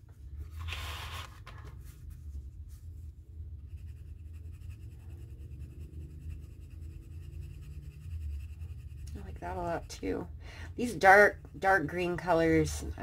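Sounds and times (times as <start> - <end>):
pencil scratching on paper: 3.6 - 10.2.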